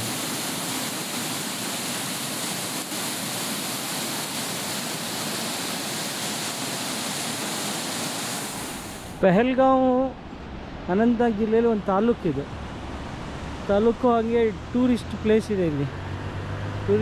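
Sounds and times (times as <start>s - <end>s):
river rushing over rapids: 0.0s - 9.4s.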